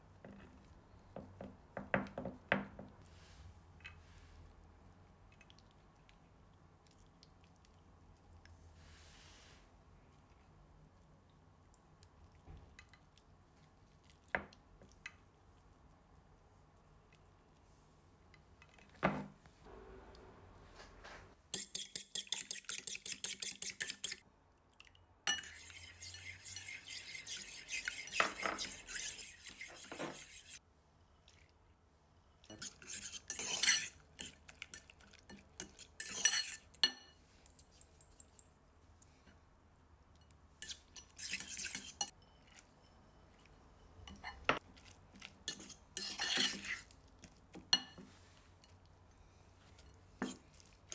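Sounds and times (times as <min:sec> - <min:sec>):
fork scraping bowl: 0:21.5 - 0:24.2, 0:25.3 - 0:30.6, 0:32.4 - 0:38.1, 0:40.6 - 0:43.5, 0:45.2 - 0:47.0.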